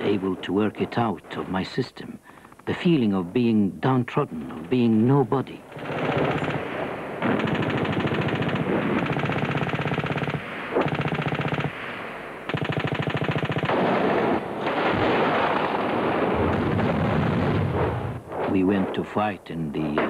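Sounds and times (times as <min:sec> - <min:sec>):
automatic weapons fire: 0:05.8 - 0:18.9.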